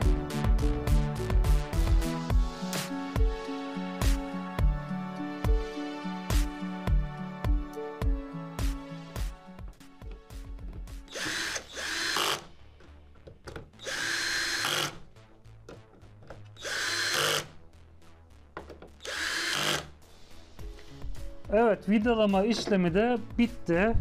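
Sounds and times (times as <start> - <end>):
background music: 0.0 - 24.0
cordless drill driving screws: 11.1 - 12.5, 13.8 - 15.0, 16.6 - 17.5, 19.0 - 19.9.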